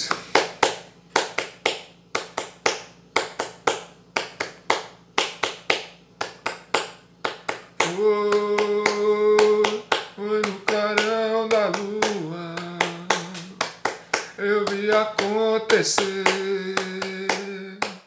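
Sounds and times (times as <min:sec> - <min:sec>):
man clapping rhythmically: 0:00.0 - 0:18.0
man singing held note: 0:07.8 - 0:13.6.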